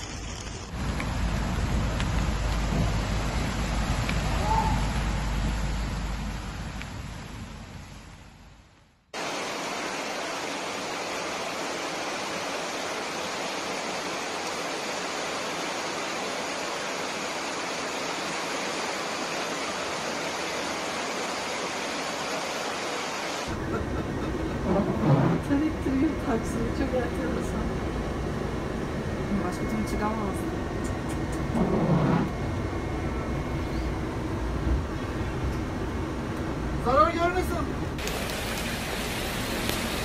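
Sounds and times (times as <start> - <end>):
floodwater rushing: 0.0 - 8.4, 9.2 - 26.1, 37.4 - 40.0
low rumble of vehicles: 0.0 - 9.2, 23.5 - 40.0
heavy rain: 0.0 - 28.9, 36.6 - 40.0.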